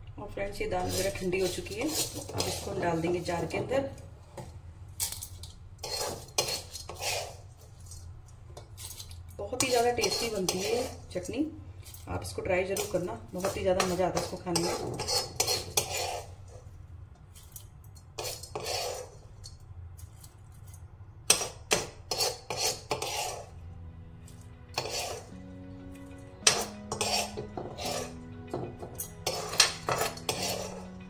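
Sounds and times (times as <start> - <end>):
soft background music: 0.0 - 4.4, 9.2 - 15.7, 22.5 - 31.0
metal spoon clinking on utensils: 0.9 - 3.5, 5.0 - 16.3, 26.4 - 30.9.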